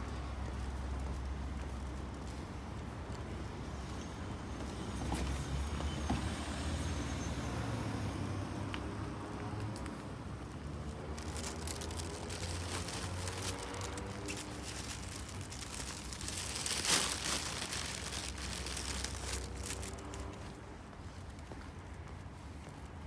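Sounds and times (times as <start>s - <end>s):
distant traffic rumble: 0.0s - 23.0s
footsteps on concrete: 20.3s - 22.9s.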